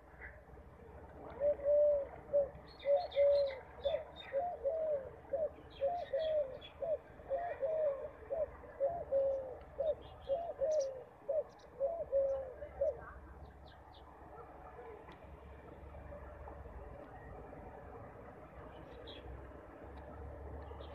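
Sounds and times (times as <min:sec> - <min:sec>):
pigeon cooing: 0:01.2 - 0:13.2
small birds chirping: 0:08.4 - 0:14.5.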